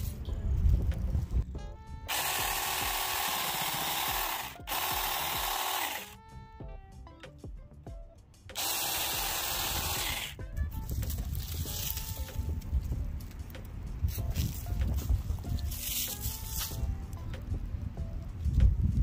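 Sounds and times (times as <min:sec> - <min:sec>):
mini chainsaw motor whining: 0:02.1 - 0:06.2, 0:08.6 - 0:10.4.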